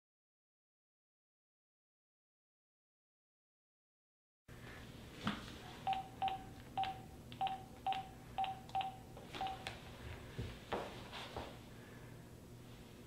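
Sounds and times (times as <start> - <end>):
phone keypad beeps: 5.9 - 9.7.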